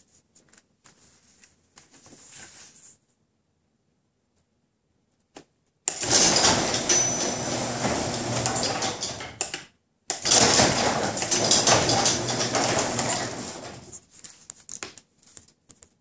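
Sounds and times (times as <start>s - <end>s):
door panels rattling: 5.9s - 9.5s, 10.1s - 13.9s
garage door opener click: 5.9s - 13.9s
garage door motor hum: 5.9s - 14.0s.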